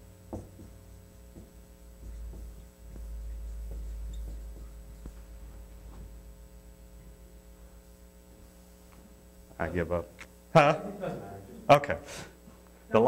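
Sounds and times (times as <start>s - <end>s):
steady low hum: 0.0s - 13.0s
marker writing on whiteboard: 0.4s - 6.0s
low rumble: 1.8s - 8.7s.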